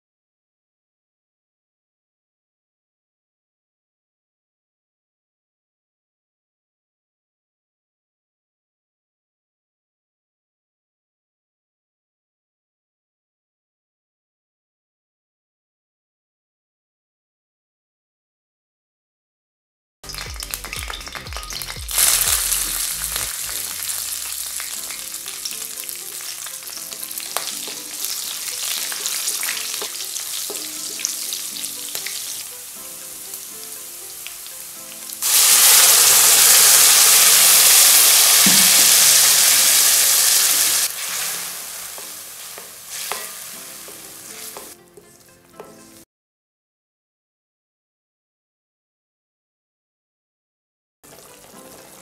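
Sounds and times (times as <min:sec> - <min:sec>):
paste sizzling loudly in oil: 0:20.0 - 0:44.8, 0:51.1 - 0:52.0
spices sizzling in hot oil: 0:20.0 - 0:45.3, 0:51.1 - 0:52.0
wooden spatula stirring: 0:41.0 - 0:44.7.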